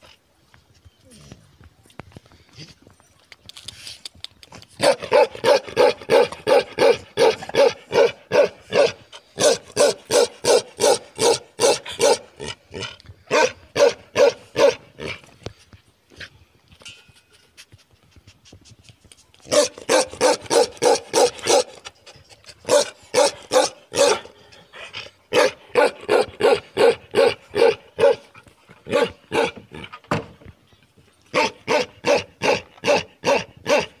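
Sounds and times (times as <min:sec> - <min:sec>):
dog barking: 0:04.8 - 0:12.3, 0:13.3 - 0:14.8, 0:19.5 - 0:21.8, 0:22.7 - 0:24.3, 0:25.3 - 0:28.3, 0:28.9 - 0:29.6, 0:31.3 - 0:34.0.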